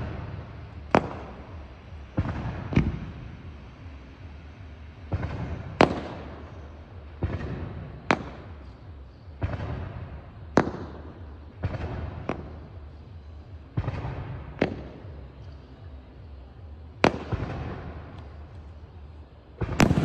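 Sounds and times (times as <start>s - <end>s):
firework booms and cracks: 0.0s - 3.4s, 5.0s - 8.6s, 9.4s - 12.9s, 13.7s - 15.1s, 17.0s - 18.5s, 19.6s - 20.0s.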